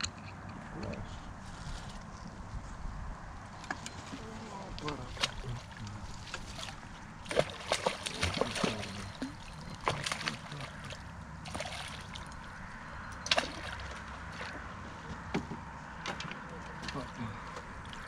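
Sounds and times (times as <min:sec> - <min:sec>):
fish splashing in water: 0:04.8 - 0:14.7
net pushed through water: 0:05.0 - 0:12.5.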